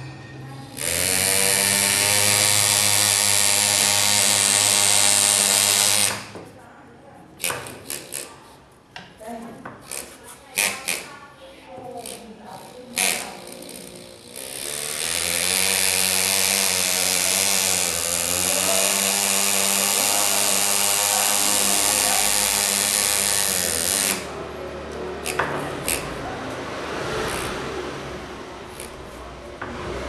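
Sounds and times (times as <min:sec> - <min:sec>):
pneumatic engraver buzzing: 0:00.6 - 0:06.4, 0:07.4 - 0:08.6, 0:12.0 - 0:24.4, 0:25.2 - 0:26.2, 0:28.6 - 0:29.2.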